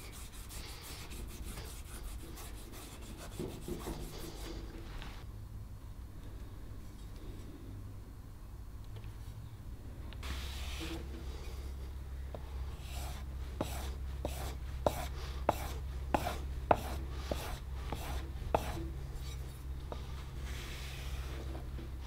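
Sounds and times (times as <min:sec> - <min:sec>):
plane iron scraping on sharpening block: 0:12.9 - 0:19.4.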